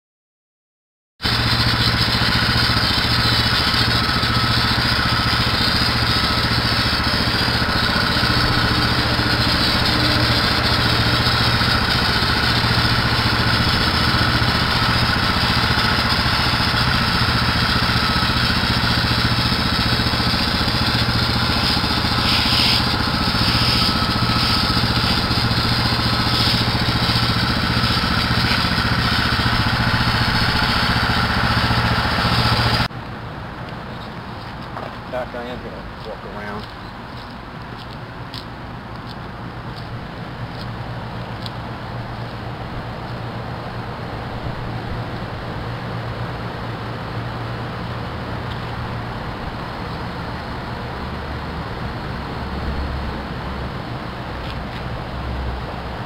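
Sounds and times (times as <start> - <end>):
small engine running steadily: 1.2 - 56.0
short hiss: 21.6 - 25.2.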